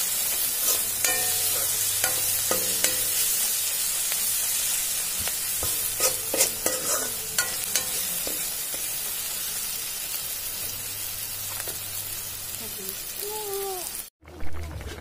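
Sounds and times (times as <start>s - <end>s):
vegetables sizzling in oil: 0.0s - 14.1s
metal spatula scraping pan: 0.2s - 3.8s, 4.4s - 9.3s.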